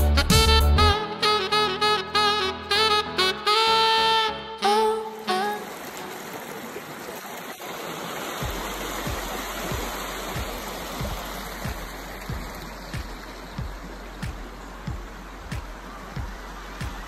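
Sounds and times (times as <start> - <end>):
stream rushing: 3.6 - 17.0
soft low thumps: 8.4 - 17.0.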